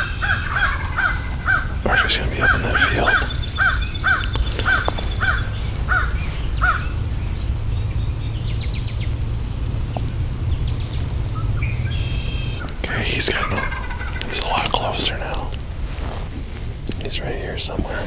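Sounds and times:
crows cawing: 0.0 - 7.6, 11.3 - 16.7
steady low rumble: 0.0 - 18.0.

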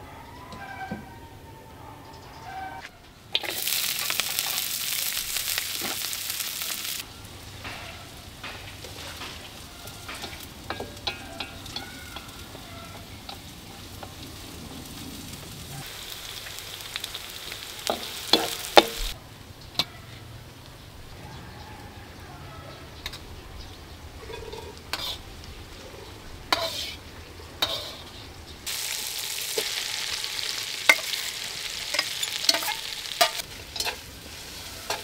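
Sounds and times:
food sizzling in hot oil: 3.3 - 19.2, 28.6 - 35.0.

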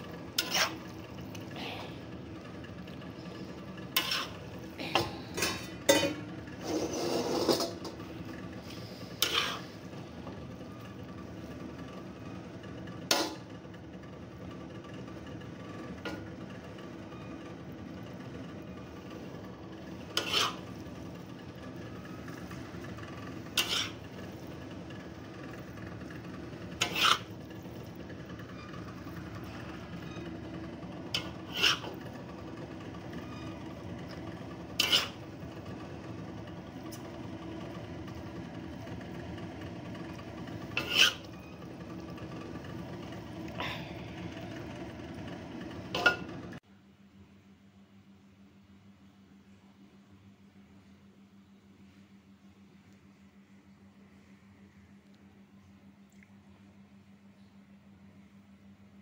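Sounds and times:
metal ladle scraping a wok: 0.1 - 1.9, 3.2 - 10.0, 19.8 - 24.8, 26.1 - 27.8, 31.1 - 32.1, 33.1 - 35.3, 40.4 - 41.6.

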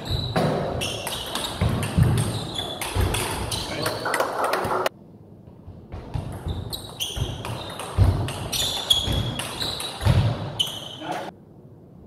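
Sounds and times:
shoes squeaking on floor: 0.0 - 4.2, 6.1 - 11.3.

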